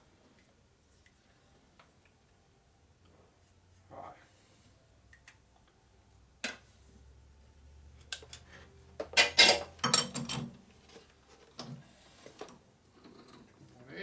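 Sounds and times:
metal tools clinking: 9.2s - 10.5s.

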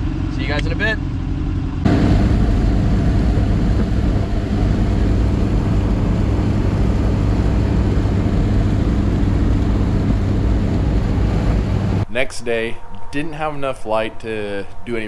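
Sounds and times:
car engine running: 0.0s - 12.0s
wind and road noise: 0.0s - 15.0s.

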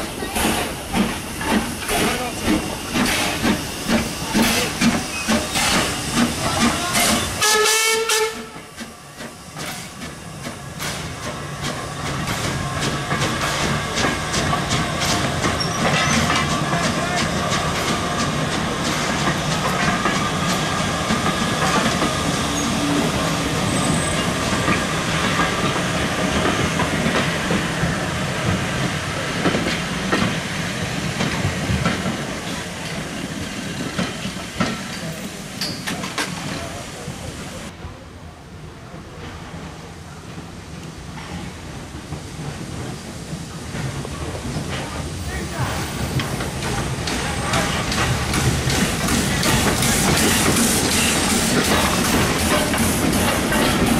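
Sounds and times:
coaches rattling over rail joints: 0.0s - 37.7s, 39.2s - 53.9s
hissing steam: 0.0s - 37.7s, 39.7s - 53.9s
steam locomotive whistle: 7.0s - 8.7s.

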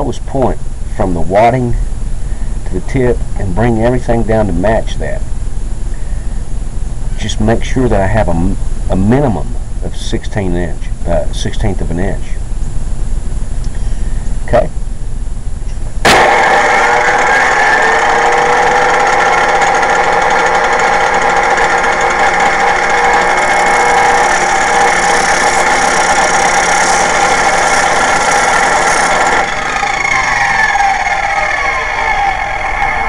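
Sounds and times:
bench grinder whine: 15.7s - 33.0s
shell grinding on disc: 16.1s - 33.0s.

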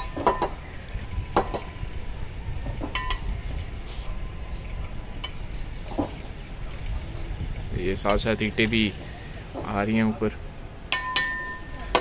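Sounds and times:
bricks and trowels clinking: 0.0s - 0.6s
low steady rumble: 0.0s - 12.0s.

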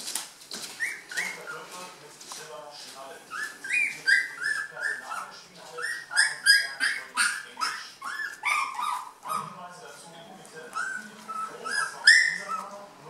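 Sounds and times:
puppies whining and yelping: 0.6s - 1.6s, 3.3s - 9.6s, 10.7s - 12.7s.

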